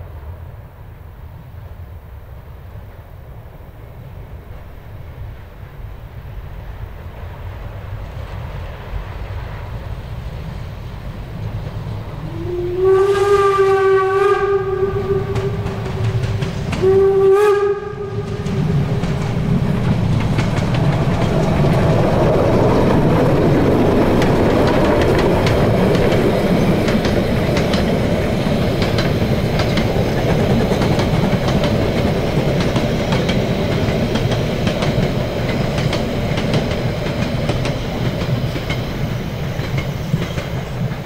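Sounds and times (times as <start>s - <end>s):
steam locomotive running: 3.8s - 41.0s
wheels clattering on rails: 11.0s - 41.0s
steam whistle blasts: 12.2s - 19.0s.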